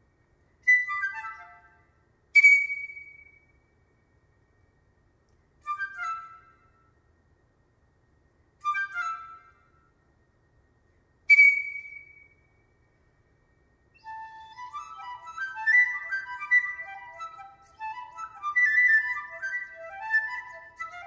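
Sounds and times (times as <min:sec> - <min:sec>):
solo piccolo playing: 0:14.0 - 0:21.0.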